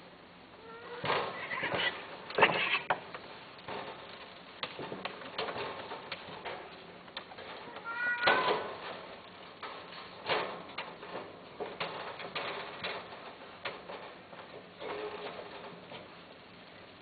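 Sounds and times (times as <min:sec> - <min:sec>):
clicks and knocks: 0:01.0 - 0:16.2
cat meowing: 0:07.7 - 0:08.6.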